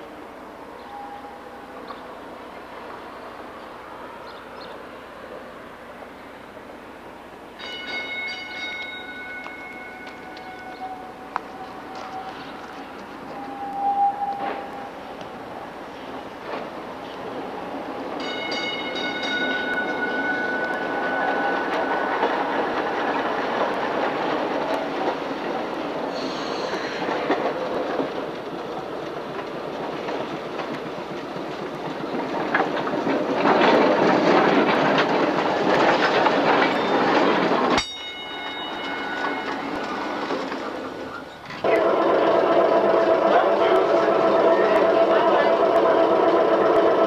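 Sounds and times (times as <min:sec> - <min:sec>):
streetcar rolling rumble: 0:00.0 - 0:47.0
wheels clacking over rail joints: 0:06.0 - 0:47.0
high ringing tone: 0:07.6 - 0:15.0, 0:37.8 - 0:40.0.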